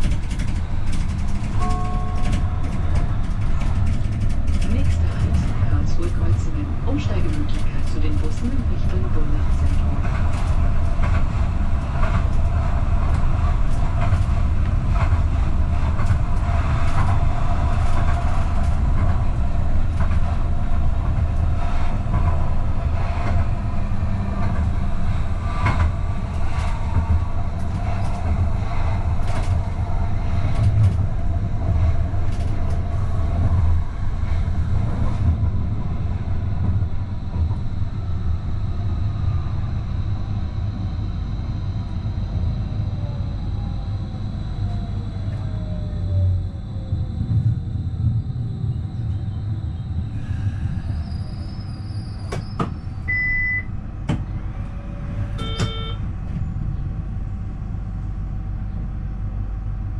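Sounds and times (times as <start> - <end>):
tram wheels rumbling on rail: 0.0 - 59.9.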